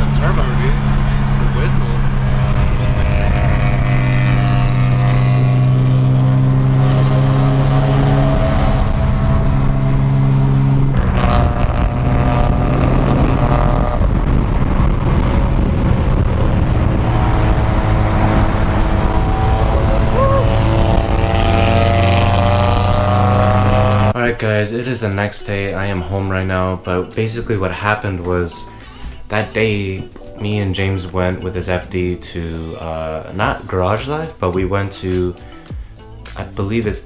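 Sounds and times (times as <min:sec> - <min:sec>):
wind noise: 0:00.0 - 0:24.4
car engine drone: 0:00.0 - 0:36.3
tyre roar: 0:16.8 - 0:24.1.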